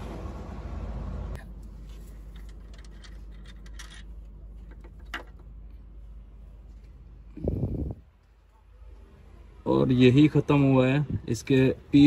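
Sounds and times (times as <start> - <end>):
low steady hum: 0.0 - 12.0
light metallic clinks and scrapes: 1.6 - 5.5.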